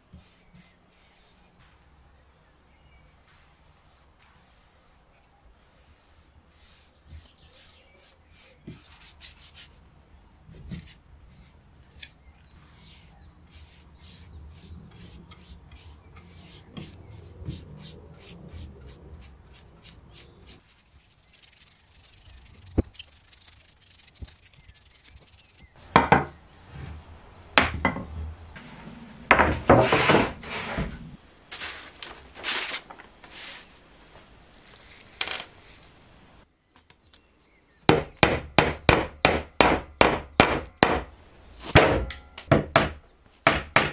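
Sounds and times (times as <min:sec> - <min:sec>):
brush strokes on wood: 0:00.0 - 0:01.9, 0:03.0 - 0:09.8, 0:12.6 - 0:27.5, 0:28.6 - 0:36.2
scrapes and knocks on wood: 0:25.8 - 0:31.8.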